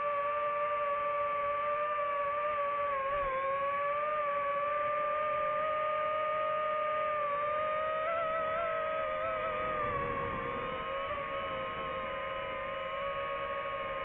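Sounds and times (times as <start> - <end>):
drone propellers whining: 0.0 - 14.0.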